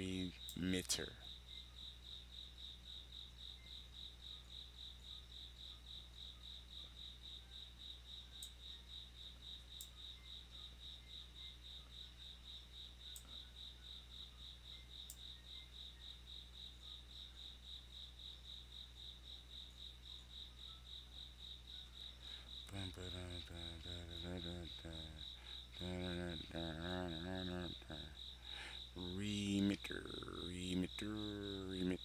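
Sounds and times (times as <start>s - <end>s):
low voice: 0.0s - 1.2s, 22.6s - 32.0s
crickets chirping: 0.0s - 32.0s
low hum: 22.3s - 32.0s.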